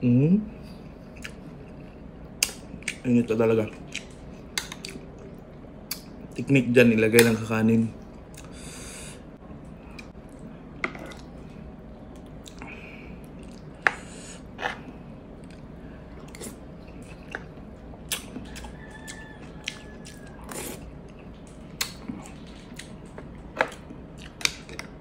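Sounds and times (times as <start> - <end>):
chewing and biting food: 15.4 - 25.0.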